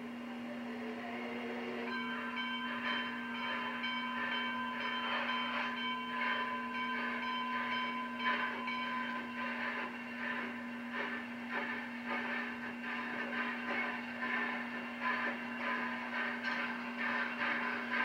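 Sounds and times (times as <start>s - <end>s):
steam locomotive ringing tones: 0.0s - 18.0s
steam puffs and hiss: 9.3s - 18.0s.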